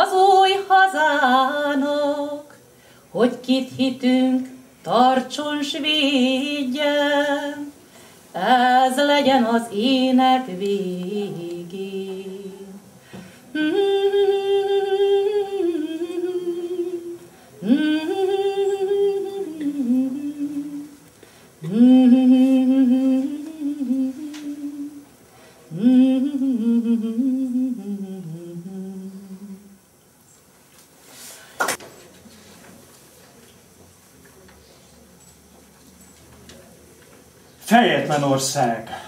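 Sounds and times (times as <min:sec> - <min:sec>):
woman singing folk melody: 0:00.0 - 0:12.9, 0:13.5 - 0:25.1, 0:25.7 - 0:29.8.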